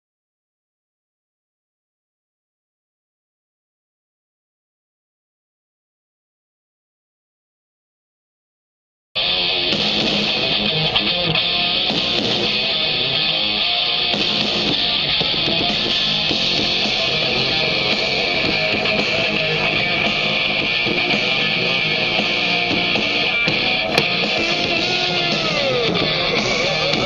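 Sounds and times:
rock music through small speakers: 9.2 - 27.0.

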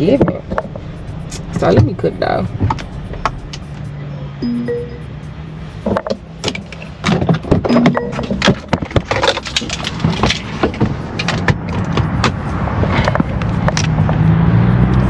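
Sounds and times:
low steady hum: 0.0 - 10.1.

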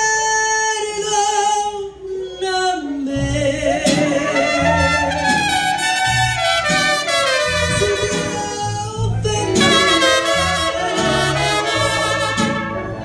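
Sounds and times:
low bass notes: 3.0 - 13.0
strummed guitars: 3.2 - 13.0
trumpets playing melody: 4.2 - 13.0.

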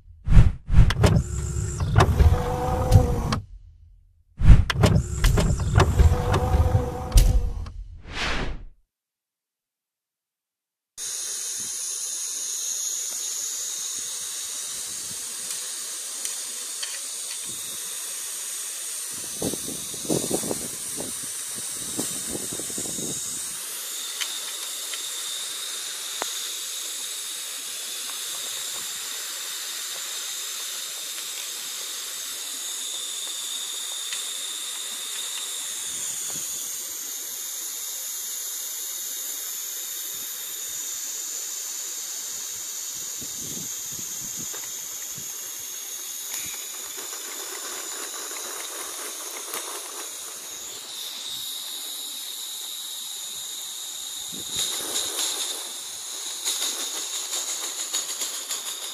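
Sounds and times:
low rumbling: 0.0 - 8.7
steam hissing: 0.9 - 3.4, 4.4 - 8.6, 11.0 - 58.9.

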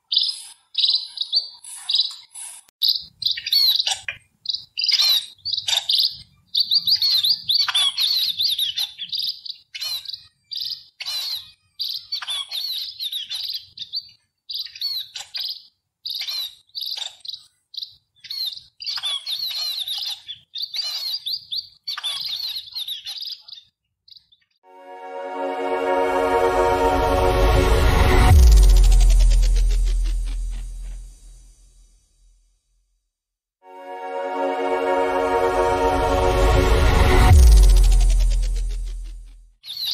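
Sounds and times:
sparrow chirping: 0.0 - 24.5, 39.6 - 39.9.

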